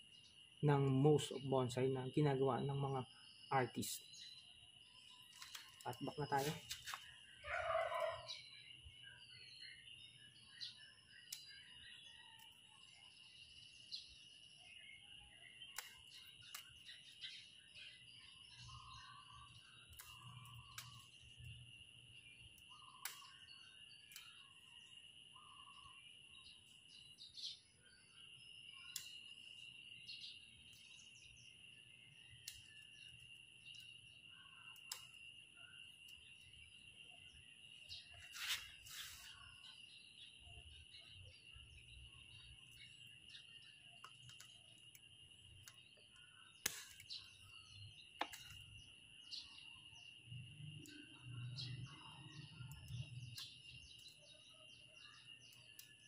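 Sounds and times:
scratchy rustle: 38.2s - 39.3s.

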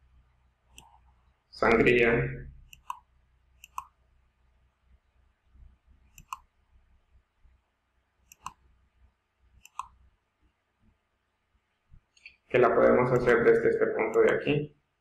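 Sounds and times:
computer mouse double clicks: 6.2s - 6.4s.

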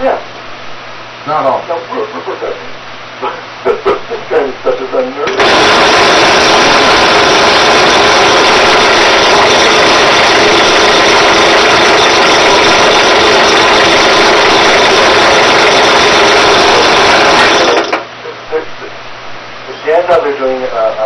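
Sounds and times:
drill press running: 5.2s - 18.1s.

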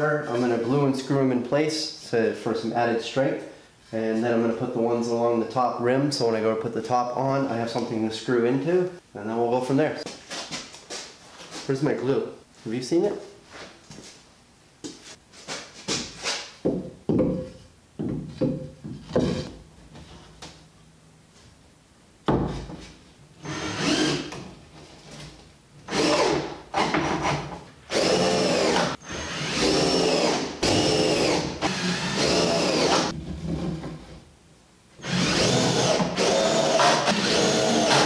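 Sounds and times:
cordless drill driving screws: 23.4s - 24.4s, 27.9s - 33.1s, 35.0s - 38.0s.

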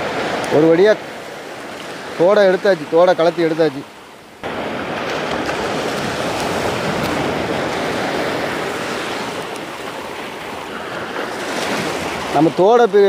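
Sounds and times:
waves breaking on a beach: 0.0s - 13.0s.

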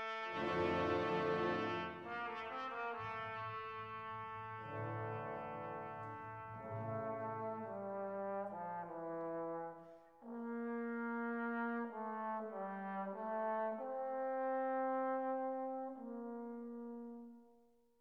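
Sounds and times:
slow brass music: 0.0s - 17.6s.

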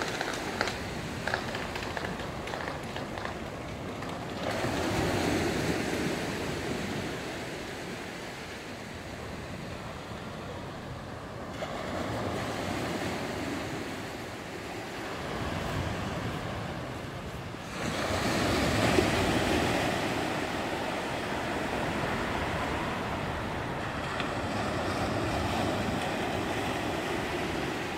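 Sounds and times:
small waves breaking on beach: 0.0s - 27.9s.

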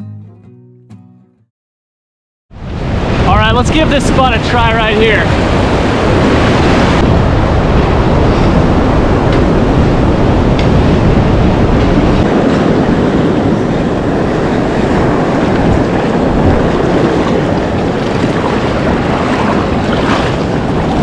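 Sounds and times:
shallow surf churning: 2.6s - 21.0s
wind buffeting microphone: 2.6s - 21.0s.

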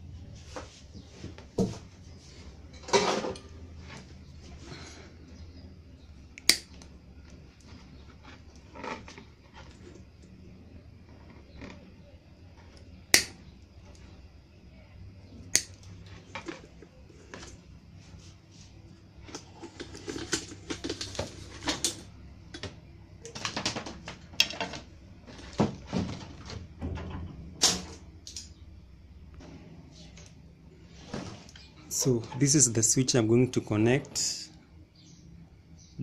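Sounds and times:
pliers snapping wires: 6.4s - 6.9s, 13.1s - 13.4s, 15.5s - 15.9s.

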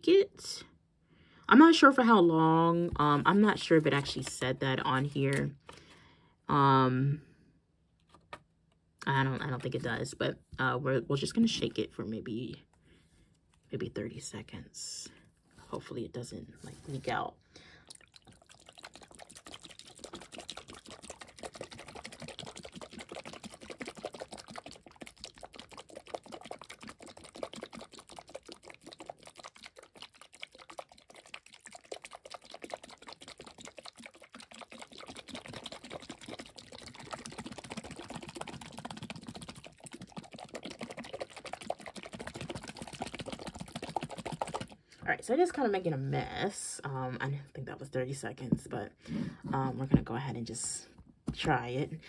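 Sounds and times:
water sloshing: 17.9s - 44.8s.

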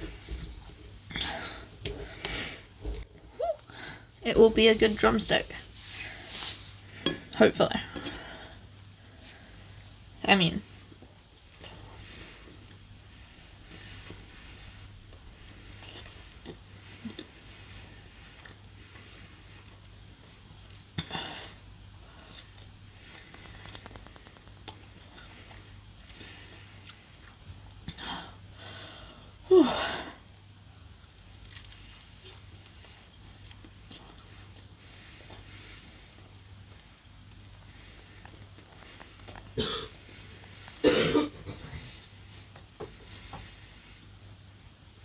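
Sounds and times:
steady low hum: 0.0s - 45.0s
woman coughing: 39.6s - 39.9s, 40.8s - 41.6s.

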